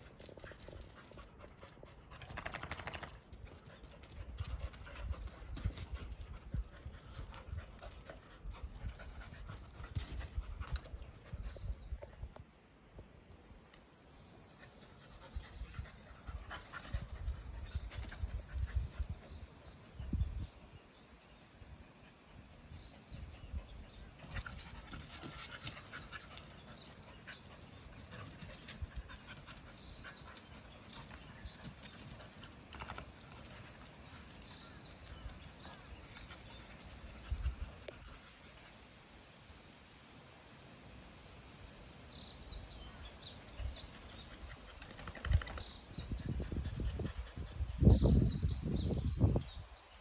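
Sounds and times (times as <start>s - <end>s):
dogs scuffling and rustling: 0.0s - 11.3s
dogs panting: 23.9s - 38.8s.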